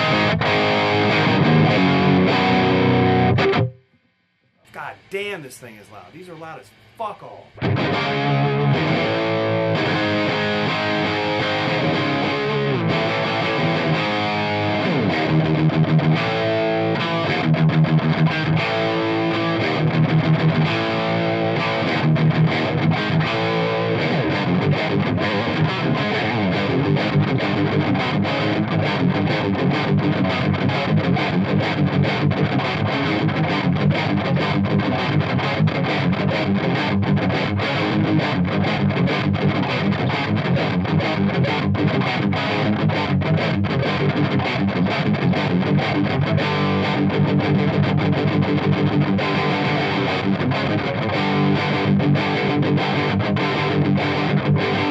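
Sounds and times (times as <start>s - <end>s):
distorted electric guitar: 0.0s - 54.9s.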